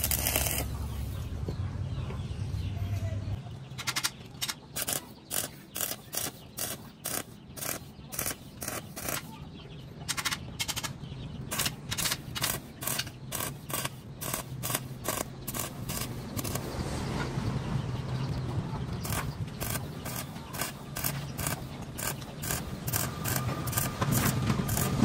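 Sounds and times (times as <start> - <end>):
welding arc crackling: 0.0 - 0.7, 4.7 - 9.3, 11.5 - 16.8, 19.0 - 25.0.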